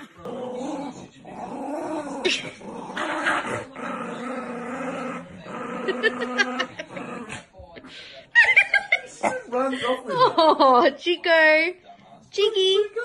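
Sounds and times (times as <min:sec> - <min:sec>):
small dogs growling: 0:00.0 - 0:07.9.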